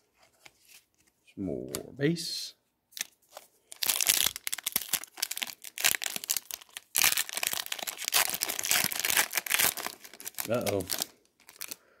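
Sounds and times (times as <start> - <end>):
foil wrapper crinkling and tearing: 3.0 - 11.9.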